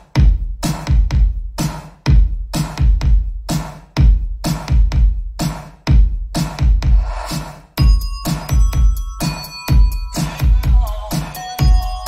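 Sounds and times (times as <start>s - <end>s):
electronic dance music: 0.0s - 12.0s
deep kick drum and bass hits: 0.1s - 7.1s.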